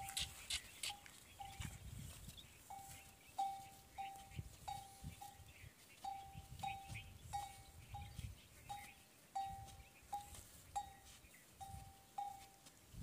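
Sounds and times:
small metal livestock bell clinking: 0.0s - 0.3s, 0.9s - 1.7s, 2.7s - 12.7s.

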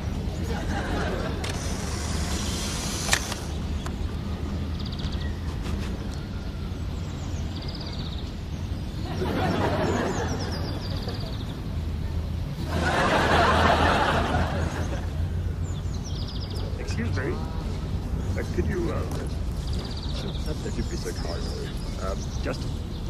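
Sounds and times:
birds chirping: 0.0s - 23.0s
steady low hum: 0.0s - 23.0s
audience laughter: 0.3s - 1.8s, 9.0s - 11.4s, 12.6s - 15.2s.

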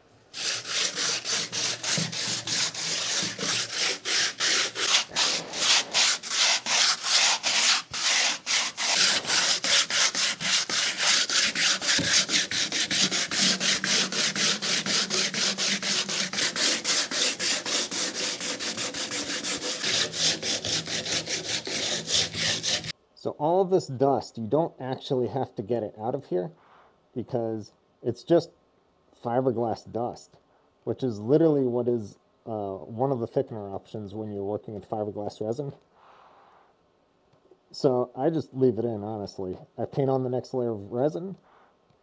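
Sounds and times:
sandpaper rubbing by hand: 0.3s - 22.9s.

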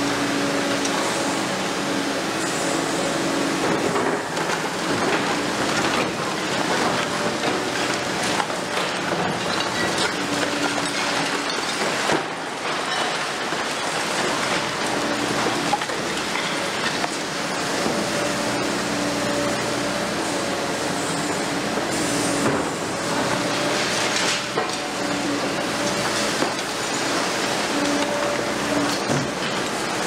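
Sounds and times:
crunching concrete and falling debris: 5.6s - 17.1s.

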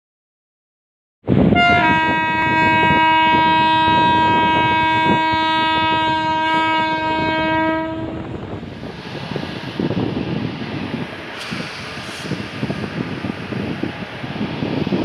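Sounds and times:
locomotive air horn blast: 1.5s - 8.2s
steady rushing noise: 3.9s - 15.0s.

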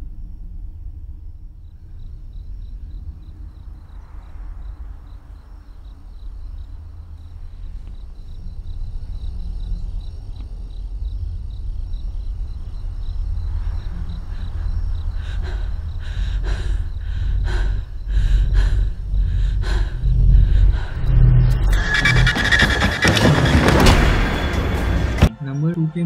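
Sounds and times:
faint crickets chirping: 0.0s - 25.3s
low rumbling drone: 0.0s - 26.0s
quick ragged breaths: 13.7s - 21.2s.

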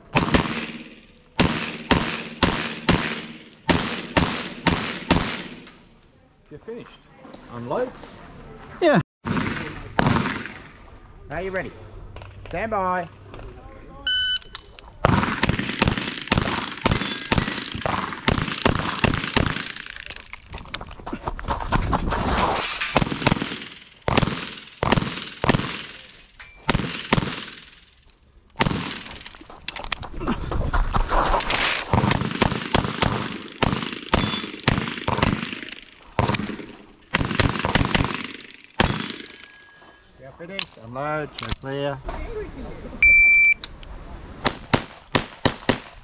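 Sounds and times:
rapid pistol shots: 0.1s - 5.6s, 9.2s - 10.7s, 15.0s - 20.1s, 23.0s - 26.1s, 26.7s - 27.9s, 28.6s - 29.3s, 31.9s - 39.4s, 44.4s - 46.0s.

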